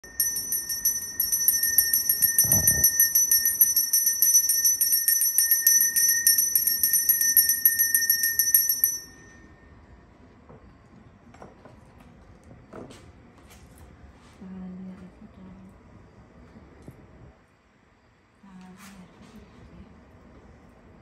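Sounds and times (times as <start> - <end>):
hand bell ringing rapidly: 0.0 - 9.4.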